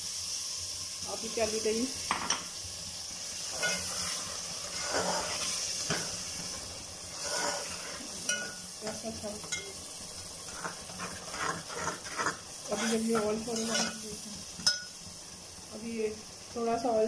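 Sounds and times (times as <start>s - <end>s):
food sizzling in a pot: 0.0s - 17.0s
metal spatula scraping a pot: 3.4s - 6.1s, 7.1s - 9.7s, 10.4s - 14.0s.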